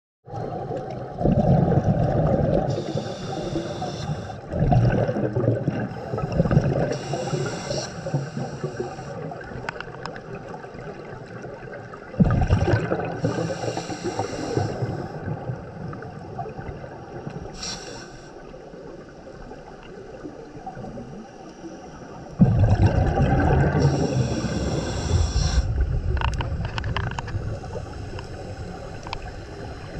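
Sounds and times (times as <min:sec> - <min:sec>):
gush of bubbles: 0:00.4 - 0:02.8, 0:04.5 - 0:06.9, 0:12.2 - 0:13.7, 0:22.4 - 0:27.3
regulator hiss on inhale: 0:02.7 - 0:04.5, 0:05.9 - 0:09.7, 0:13.2 - 0:16.0, 0:17.4 - 0:19.1, 0:23.8 - 0:26.5, 0:27.2 - 0:29.9.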